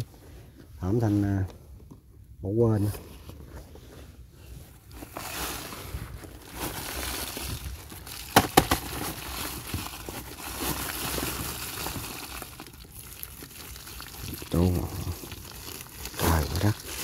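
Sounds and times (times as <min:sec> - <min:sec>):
dry leaves rustling: 0:04.9 - 0:17.0.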